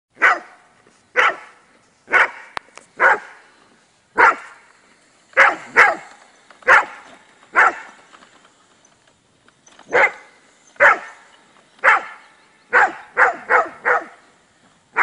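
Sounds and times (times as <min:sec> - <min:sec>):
dog barking: 0:00.2 - 0:00.6, 0:01.2 - 0:03.4, 0:04.2 - 0:04.6, 0:05.4 - 0:07.9, 0:09.9 - 0:11.2, 0:11.8 - 0:14.2.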